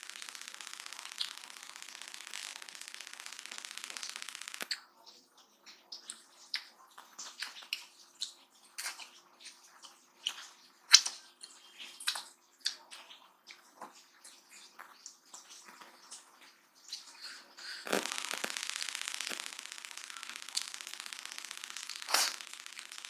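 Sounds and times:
dense crackle: 0:00.0 - 0:05.2, 0:13.8 - 0:23.0
fingers squelching in rice: 0:03.3 - 0:23.0
wet chewing and lip smacks: 0:04.6 - 0:18.5, 0:21.2 - 0:23.0.

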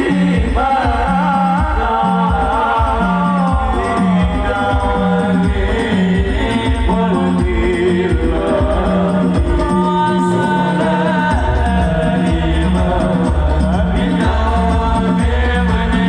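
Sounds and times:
person singing ornamented melody: 0:00.0 - 0:16.0.

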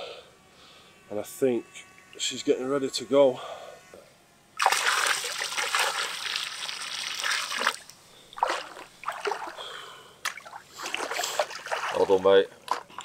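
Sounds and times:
water poured splashing into lake: 0:04.6 - 0:09.6, 0:10.3 - 0:12.2
fish splashing: 0:04.6 - 0:12.2.

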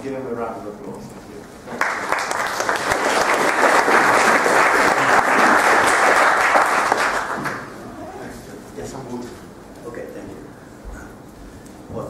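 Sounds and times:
audience applauding: 0:01.7 - 0:07.8.

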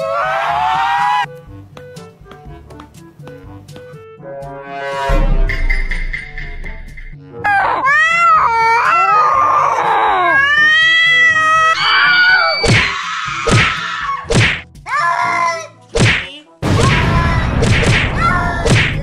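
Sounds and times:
shrill screaming cries: 0:07.5 - 0:14.3.

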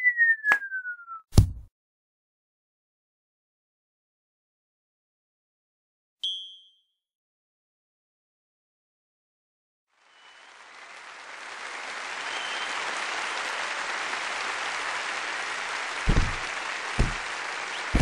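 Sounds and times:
short whistles: 0:06.2 - 0:06.9, 0:10.1 - 0:10.6, 0:12.2 - 0:13.0, 0:16.0 - 0:18.0
crowd clapping: 0:09.9 - 0:18.0
heavy low thumps: 0:16.1 - 0:16.4.

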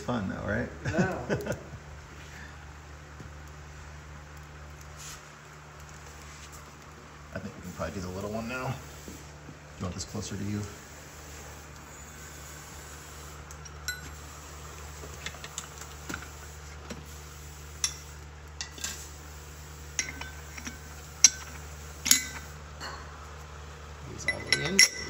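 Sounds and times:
steady low hum: 0:00.0 - 0:25.0
metal bearing clinks and taps: 0:13.5 - 0:14.2, 0:19.9 - 0:23.0, 0:24.2 - 0:25.0.

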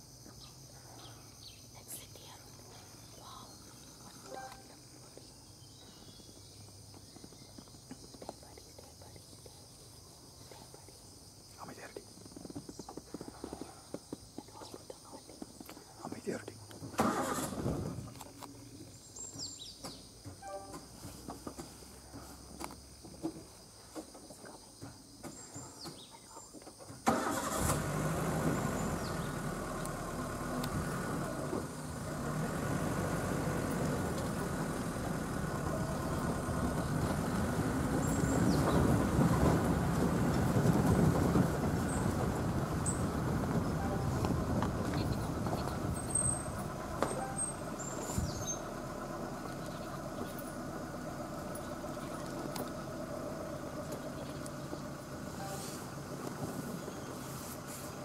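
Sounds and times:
faint bird chirps: 0:00.2 - 0:16.6, 0:42.8 - 0:48.7
vehicle engine starting and running: 0:16.7 - 0:18.8, 0:27.0 - 0:58.0.

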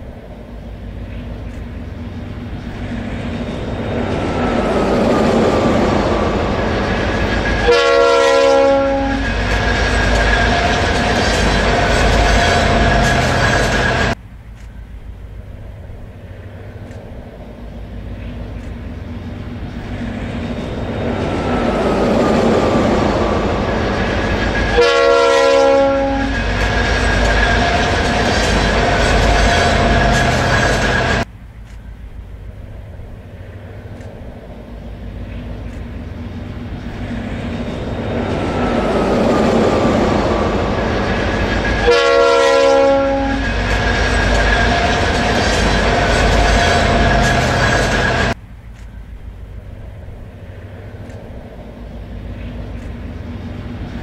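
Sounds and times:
diesel freight train passing: 0:00.0 - 0:54.0
train horn blast: 0:07.6 - 0:09.6, 0:24.6 - 0:26.8, 0:41.8 - 0:43.7.

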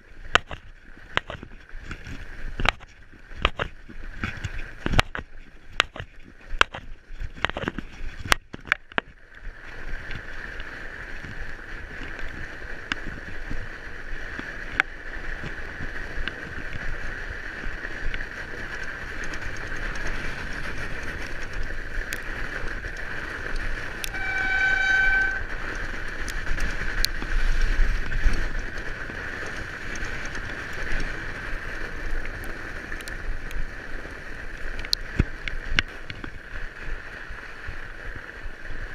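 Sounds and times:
bike tyres hissing on snow: 0:09.5 - 0:38.9
brief pitched squeal: 0:23.9 - 0:25.9.

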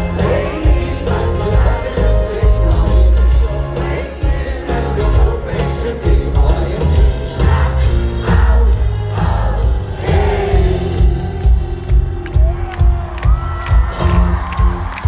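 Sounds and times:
lead vocal singing: 0:00.0 - 0:12.0
rock band playing live: 0:00.0 - 0:15.0.

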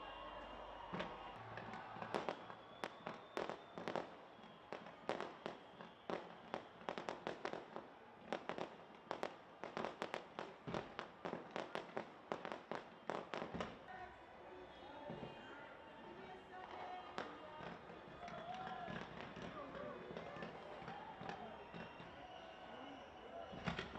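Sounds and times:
fireworks bangs and pops: 0:01.0 - 0:13.8, 0:17.2 - 0:22.5.

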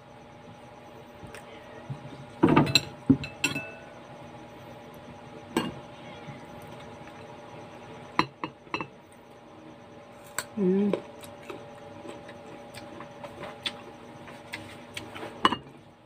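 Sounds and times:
metal spoon clinking ceramic bowls: 0:02.6 - 0:03.8.

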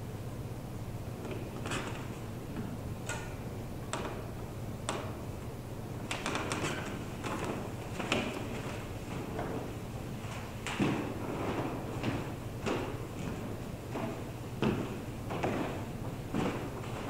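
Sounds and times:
steady low hum: 0:00.0 - 0:17.0
footsteps on wooden floor: 0:06.1 - 0:17.0.

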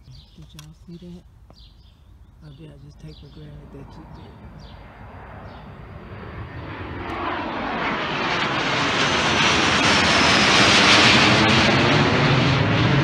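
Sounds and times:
faint high engine whine: 0:00.0 - 0:13.0
jet flying overhead: 0:02.9 - 0:13.0.

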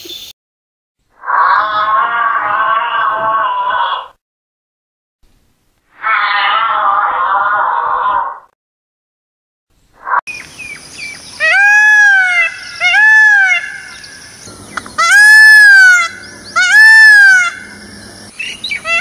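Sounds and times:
peacock calling: 0:10.3 - 0:19.0.

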